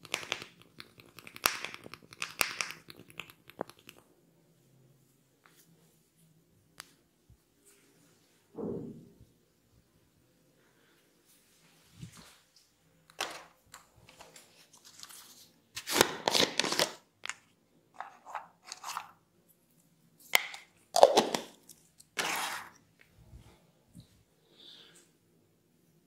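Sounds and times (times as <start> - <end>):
plastic container crinkling: 14.0 - 17.4.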